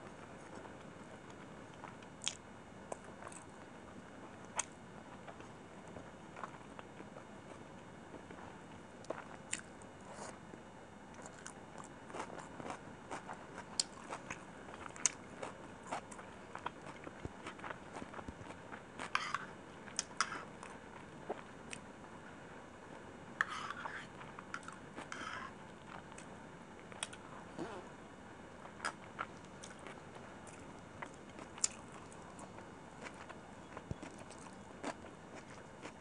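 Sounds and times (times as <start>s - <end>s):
close-miked chewing: 11.1s - 21.8s, 28.6s - 36.0s.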